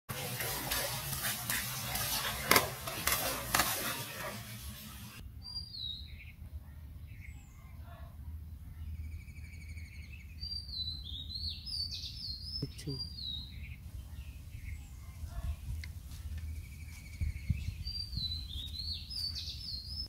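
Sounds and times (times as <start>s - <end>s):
fish splashing in water: 0.1s - 5.2s
birds chirping and calling: 8.7s - 20.0s.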